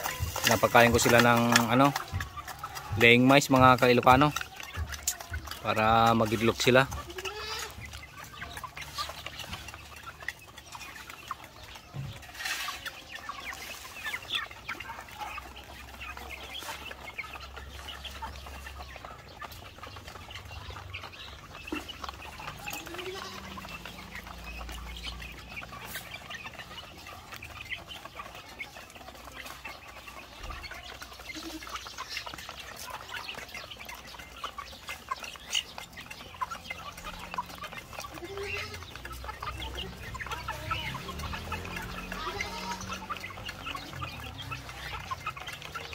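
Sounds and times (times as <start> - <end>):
chickens clucking: 0.0 - 45.9.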